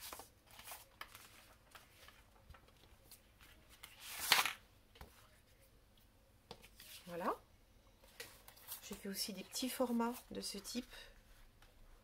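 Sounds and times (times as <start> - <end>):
paper sheets rustling: 0.0 - 4.6.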